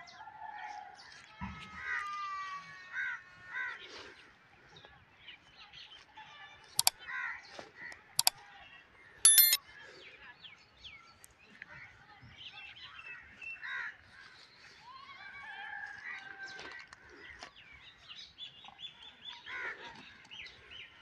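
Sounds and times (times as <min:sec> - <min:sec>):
sharp clicks: 0:09.3 - 0:09.6
short ringing chime: 0:09.3 - 0:09.6.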